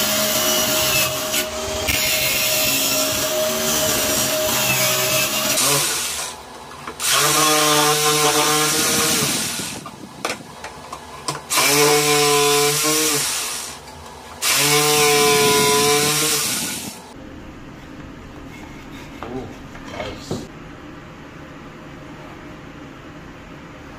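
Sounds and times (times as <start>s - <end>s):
jigsaw cutting plywood: 0.0s - 6.4s, 7.0s - 9.8s, 11.5s - 13.8s, 14.4s - 17.0s.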